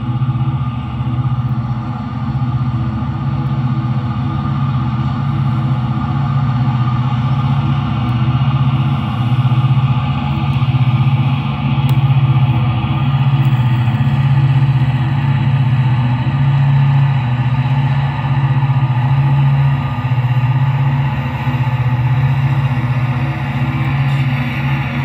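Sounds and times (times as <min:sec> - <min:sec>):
diesel engine drone: 0:00.0 - 0:25.0.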